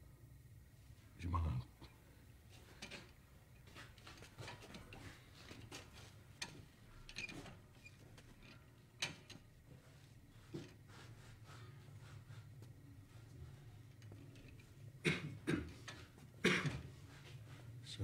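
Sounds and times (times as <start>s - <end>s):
small handling clicks and rustles: 2.5s - 10.9s, 12.6s - 14.9s.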